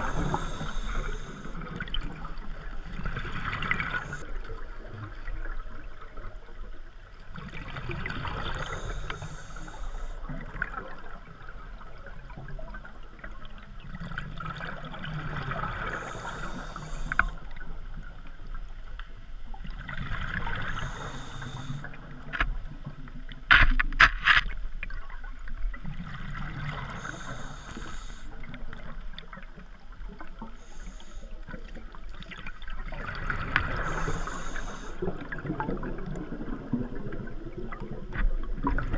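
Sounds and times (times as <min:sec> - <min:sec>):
diver breathing through regulator: 0:00.0 - 0:01.8, 0:03.2 - 0:04.2, 0:08.3 - 0:10.3, 0:15.6 - 0:17.5, 0:20.4 - 0:22.0, 0:26.7 - 0:28.5, 0:30.5 - 0:31.6, 0:33.5 - 0:35.2
exhaled bubbles rumbling: 0:00.0 - 0:18.8, 0:19.5 - 0:23.5, 0:24.8 - 0:30.7, 0:31.4 - 0:38.9.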